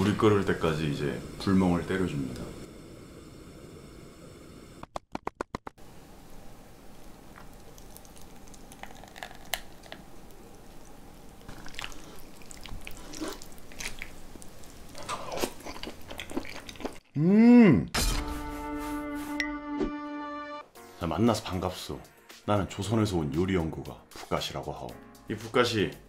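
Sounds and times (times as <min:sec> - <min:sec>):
noodles slurped and chewed: 0:11.5 - 0:17.2.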